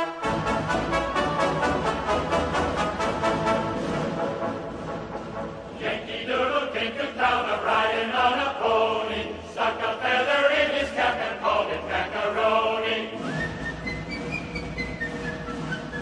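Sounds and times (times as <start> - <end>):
music: 0.0 - 16.0
group chant-like singing: 5.7 - 13.4.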